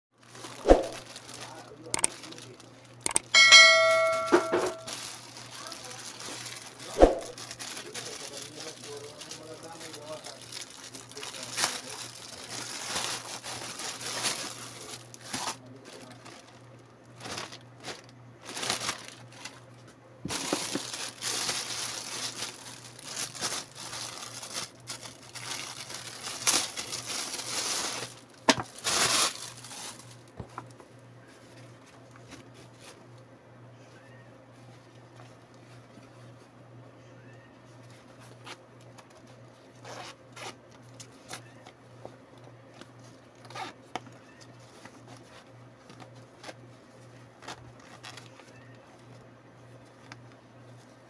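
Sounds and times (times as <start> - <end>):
plastic packaging crinkling: 0.2 - 30.8, 42.7 - 50.9.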